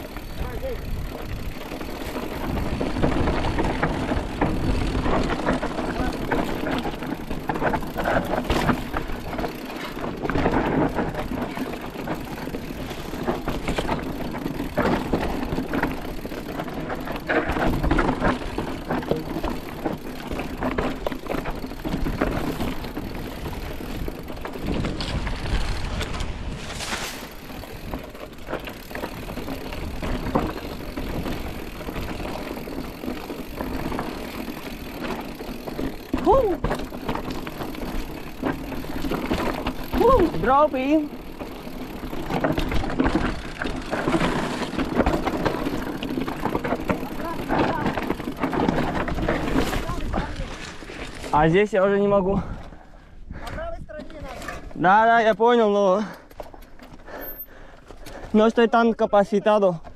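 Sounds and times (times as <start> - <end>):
bike tyres rolling over rough ground: 0.0 - 59.9.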